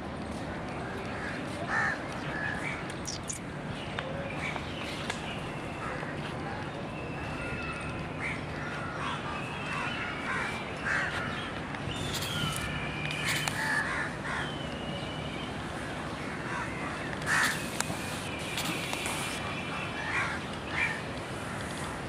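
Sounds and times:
small birds chirping: 2.9 - 3.4, 11.4 - 13.8, 17.3 - 20.0
crows cawing: 17.3 - 17.7.

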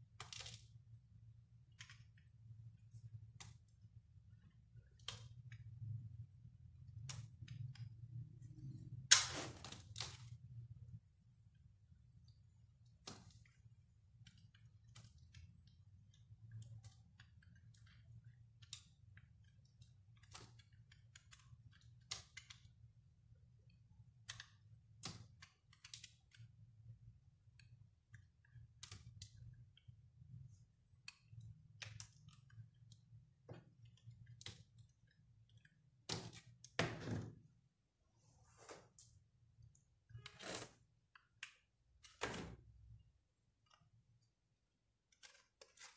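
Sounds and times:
knife cutting soap: 44.9 - 45.9.

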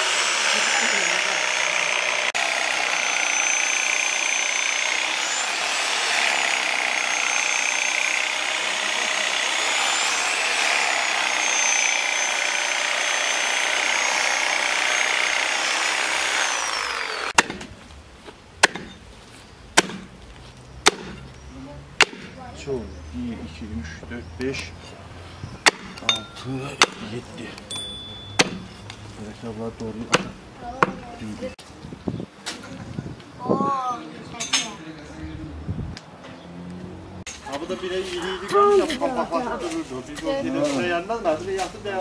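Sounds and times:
power tool motor whining: 0.0 - 17.4
sharp chopping knocks: 17.4 - 17.7, 18.6 - 19.0, 19.8 - 20.1, 20.8 - 21.2, 22.0 - 22.4, 25.6 - 26.1, 26.8 - 27.1, 28.4 - 28.7, 30.1 - 31.0.

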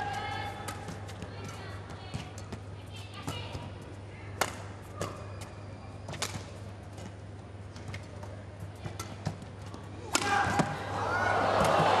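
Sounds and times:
racket hitting shuttlecock: 4.4 - 5.4, 6.1 - 6.6, 10.0 - 10.8.

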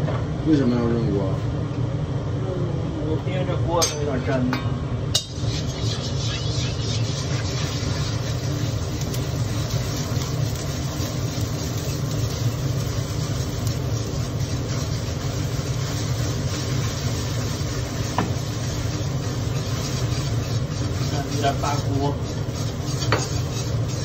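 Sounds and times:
gas burner roaring: 0.0 - 24.0
egg sizzling: 5.2 - 24.0.

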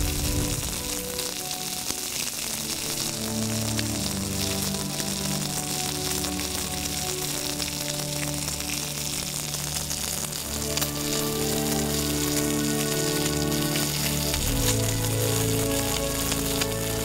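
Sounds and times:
background music: 0.0 - 17.0
pork sizzling on a griddle: 0.0 - 17.0.

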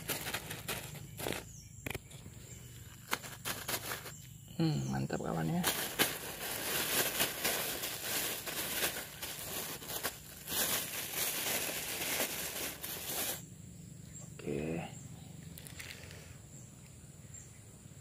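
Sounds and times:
plastic bag crinkling: 0.0 - 1.4, 2.8 - 4.2, 5.4 - 13.4.

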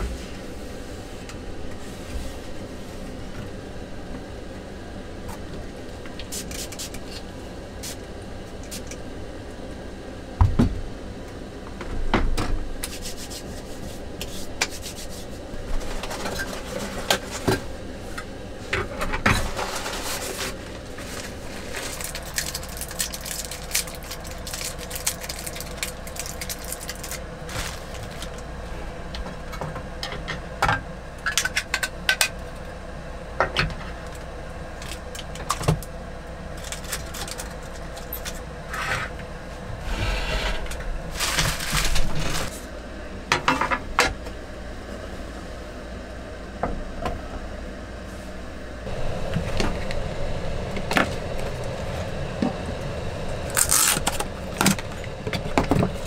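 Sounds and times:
fuller steady noise: 0.0 - 56.0
plastic wrapping crinkling: 21.2 - 28.4.

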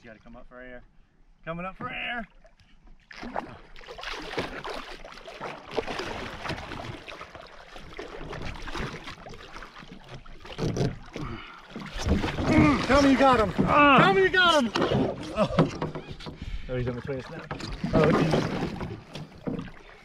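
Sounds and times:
water splashing against kayak: 1.8 - 20.0
fish thrashing at surface: 10.5 - 16.1.

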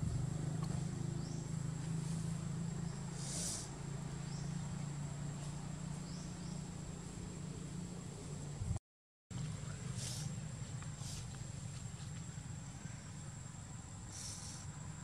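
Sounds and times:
high insect whine: 0.0 - 8.6, 9.4 - 15.0
faint chirps: 2.1 - 8.2, 9.6 - 15.0
brief hiss: 3.2 - 3.7.

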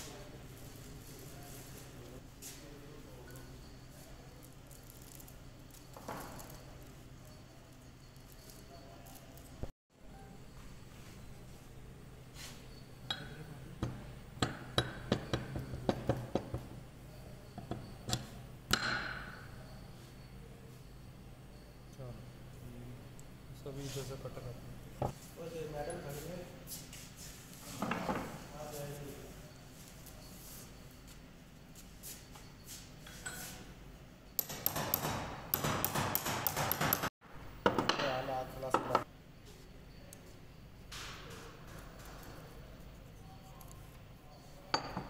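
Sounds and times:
metal gear clicking and clinking: 4.4 - 9.6
small hammer tapping on metal: 13.1 - 16.7, 17.6 - 19.4, 34.4 - 38.1.

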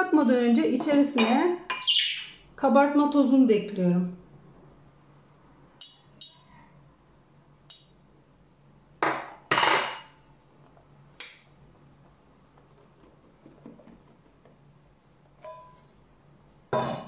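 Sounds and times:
metal bowls knocking together: 15.4 - 15.9.

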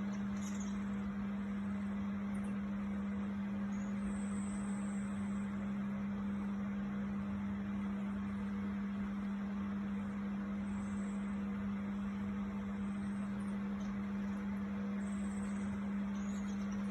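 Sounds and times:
steady low hum with hiss: 0.0 - 16.9.

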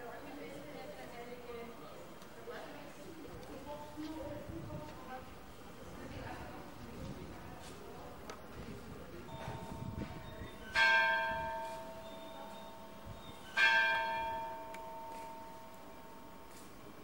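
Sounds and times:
church bell ringing: 9.3 - 16.8.

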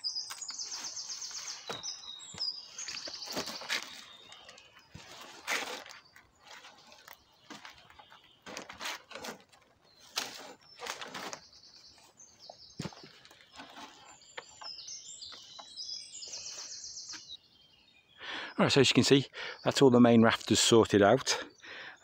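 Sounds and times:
songbird chirping: 0.0 - 22.0
rustling: 2.7 - 12.2.

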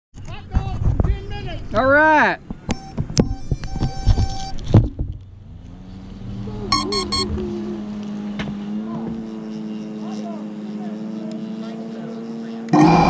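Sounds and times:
short electronic beeps: 2.7 - 4.6, 6.7 - 7.4
motor hum: 6.3 - 13.0.

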